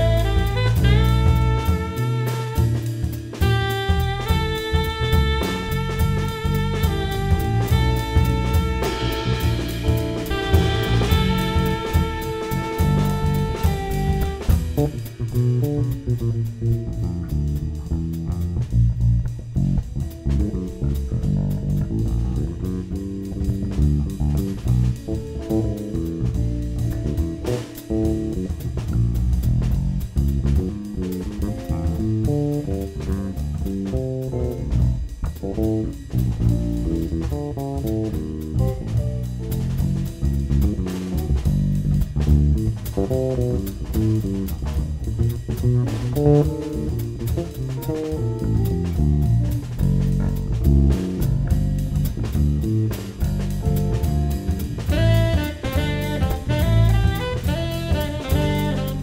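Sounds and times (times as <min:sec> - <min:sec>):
tenor saxophone: 0:00.0 - 0:16.2, 0:53.9 - 0:59.0
electric guitar melody: 0:00.0 - 0:18.0
drum kit: 0:00.0 - 0:59.0
electric bass: 0:00.0 - 0:59.0.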